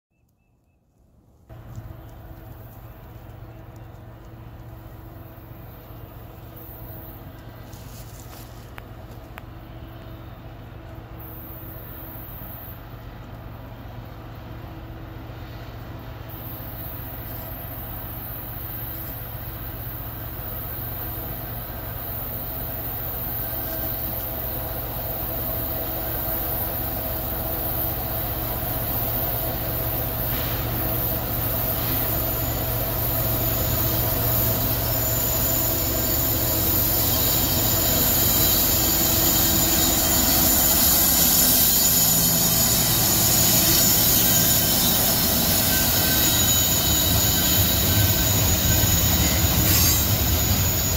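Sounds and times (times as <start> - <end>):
diesel locomotive engine hum: 0.1 - 50.9
train wheel squeal: 15.2 - 50.9.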